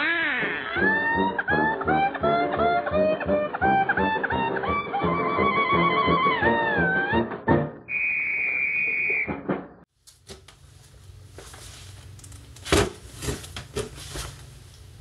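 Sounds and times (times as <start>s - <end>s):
high whistle-like tone: 7.8s - 9.4s.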